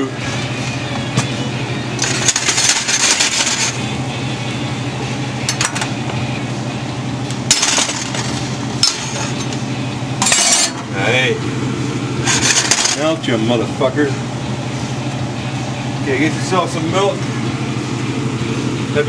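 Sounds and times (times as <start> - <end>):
steady low hum: 0.0 - 19.0
metal utensil scraping a pot: 10.2 - 10.8, 12.2 - 13.1.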